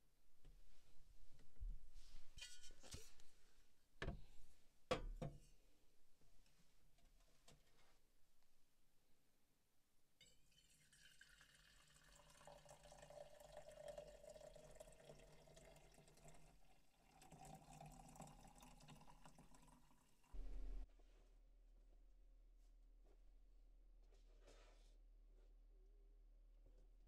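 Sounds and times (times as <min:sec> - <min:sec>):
coffee pouring into a metal mug: 0:10.2 - 0:20.3.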